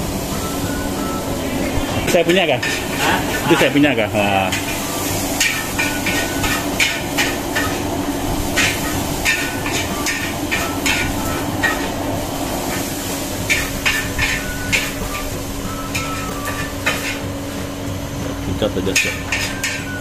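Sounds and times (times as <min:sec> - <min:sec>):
steady rushing hum: 0:00.0 - 0:20.0
metal spatula clanking on wok: 0:02.0 - 0:03.8, 0:05.4 - 0:07.8, 0:08.6 - 0:12.0, 0:13.5 - 0:15.3, 0:15.9 - 0:17.2, 0:18.9 - 0:20.0.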